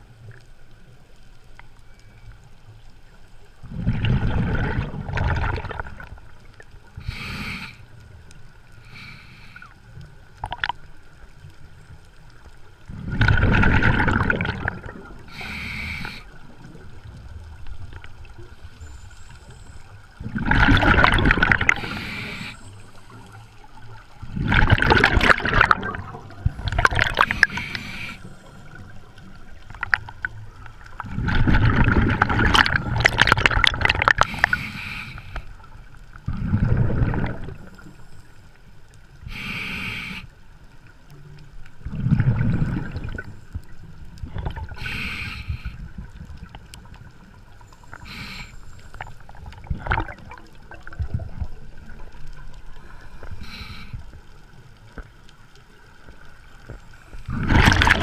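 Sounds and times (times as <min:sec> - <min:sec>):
bubbling exhaled air underwater: 0:03.6 - 0:06.4, 0:12.8 - 0:19.3, 0:20.1 - 0:35.2, 0:36.2 - 0:38.0, 0:41.8 - 0:55.1, 0:56.0 - 0:58.0
regulator hissing inhalations: 0:07.0 - 0:07.9, 0:08.8 - 0:09.8, 0:15.3 - 0:16.3, 0:21.8 - 0:23.4, 0:27.2 - 0:28.6, 0:34.2 - 0:35.6, 0:39.3 - 0:40.3, 0:44.8 - 0:45.9, 0:47.8 - 0:49.0, 0:53.0 - 0:54.2.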